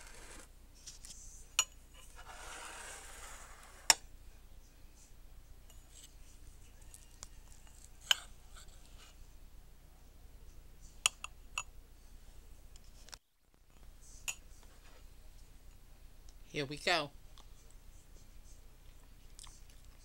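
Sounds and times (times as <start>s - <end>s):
spoon scraping: 0.0s - 0.5s, 2.0s - 4.0s.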